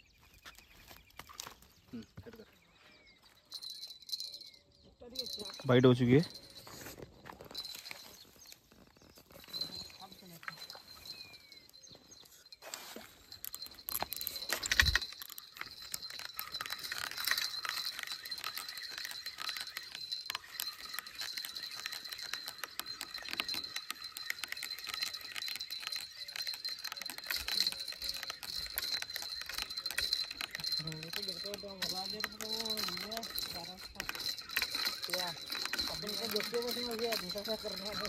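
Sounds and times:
fishing reel clicking: 0:13.3 - 0:38.0.

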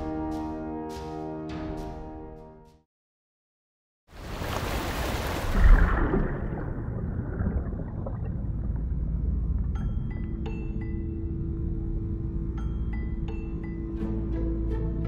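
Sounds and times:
underwater rushing water: 0:04.2 - 0:09.7
low underwater rumble: 0:05.5 - 0:12.5.

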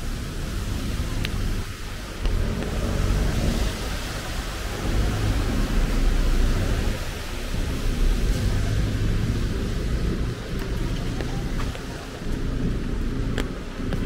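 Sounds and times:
traffic on wet road: 0:00.0 - 0:14.0.

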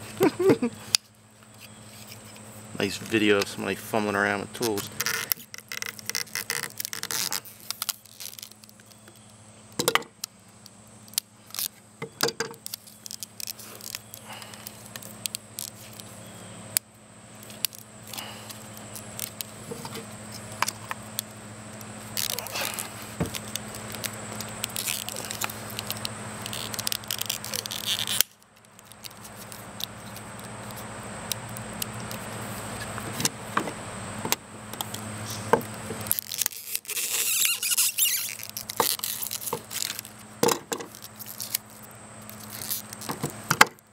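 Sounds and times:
pliers clicking and scraping plastic: 0:36.0 - 0:41.6.

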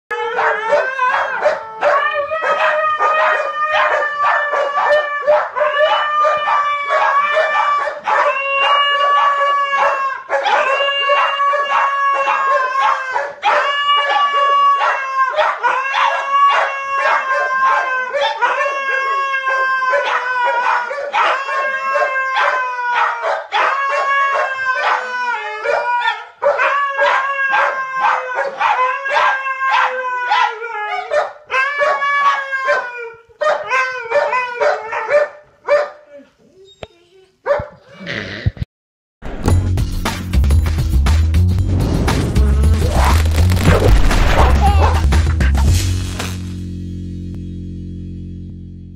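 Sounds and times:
dogs howling: 0:00.1 - 0:37.8
dog barks and yips: 0:00.4 - 0:37.8.

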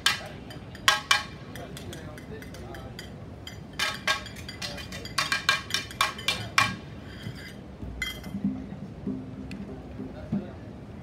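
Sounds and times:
light metallic clinks: 0:07.4 - 0:08.3.

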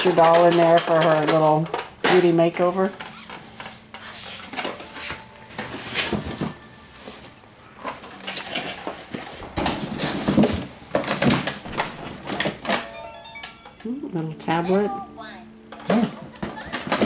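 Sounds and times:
rummaging in cardboard box: 0:03.1 - 0:12.3.

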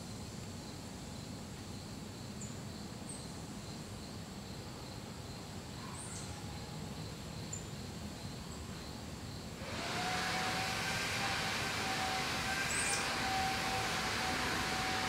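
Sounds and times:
lower pulsing insect trill: 0:00.0 - 0:09.7.

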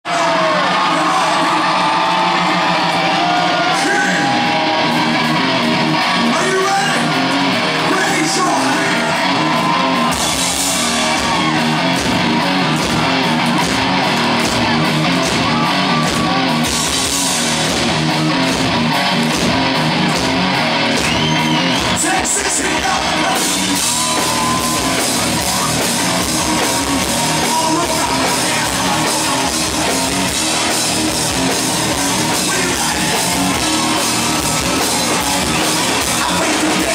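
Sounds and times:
electric guitar: 0:00.1 - 0:36.9
bass and drum beat: 0:04.5 - 0:36.9
singer's voice: 0:06.1 - 0:09.8, 0:21.1 - 0:30.2, 0:31.4 - 0:36.9.

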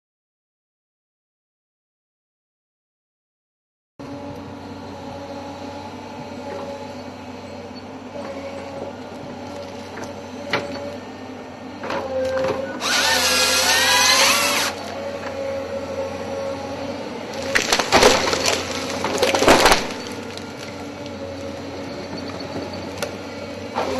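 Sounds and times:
excavator diesel engine: 0:04.0 - 0:23.9
hydraulic chain saw cutting trunk: 0:12.0 - 0:15.0, 0:17.3 - 0:21.1.

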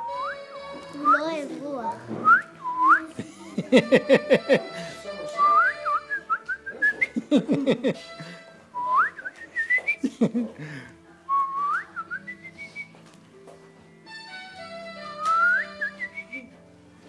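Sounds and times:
whistling gliding upward: 0:00.0 - 0:01.2, 0:02.2 - 0:03.0, 0:15.2 - 0:16.5.

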